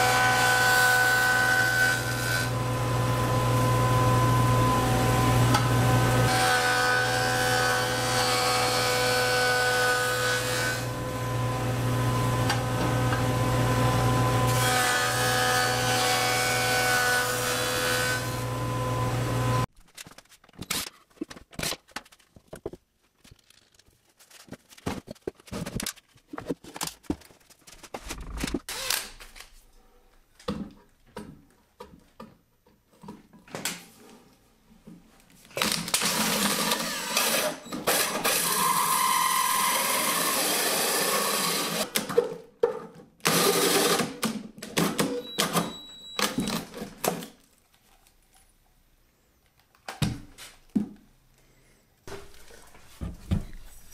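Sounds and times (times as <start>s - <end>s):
drill hole saw cutting plywood: 35.6s - 41.9s, 43.2s - 44.2s.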